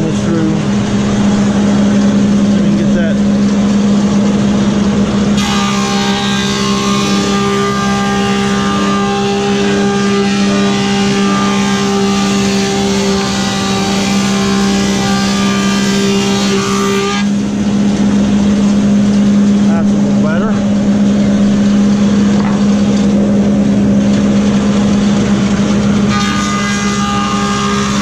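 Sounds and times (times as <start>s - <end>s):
planer machine humming: 0.0s - 28.0s
hiss of planer cutting wood: 5.4s - 17.3s, 26.1s - 28.0s.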